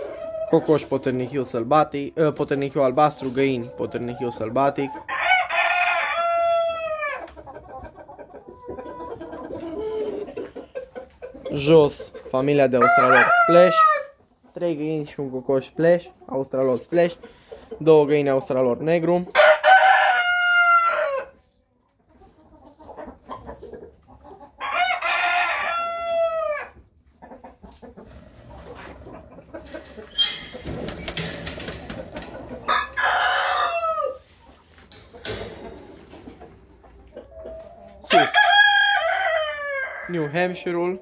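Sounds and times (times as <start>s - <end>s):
hens clucking: 0.0s - 41.0s
roosters crowing: 5.1s - 7.2s, 12.7s - 14.2s, 19.3s - 21.4s, 24.6s - 26.8s, 32.3s - 34.4s, 37.8s - 40.4s.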